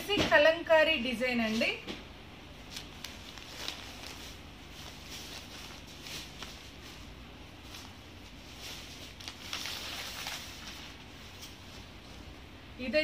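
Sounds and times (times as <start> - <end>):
fabric rustling and swishing: 2.6 - 12.4.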